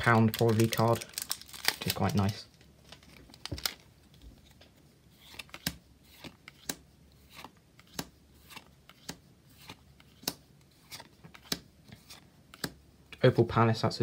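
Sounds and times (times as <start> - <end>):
cards laid on a pile clicking: 5.3 - 12.8.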